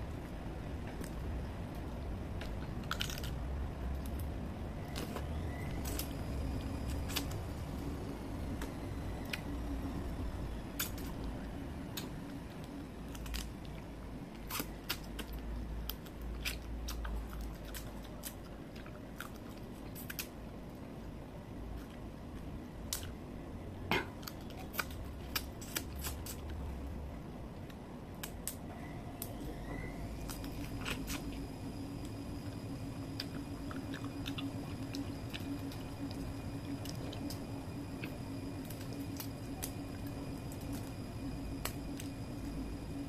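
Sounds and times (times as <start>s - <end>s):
low steady hum: 0.0s - 43.0s
chewing: 14.5s - 20.3s, 33.2s - 37.4s.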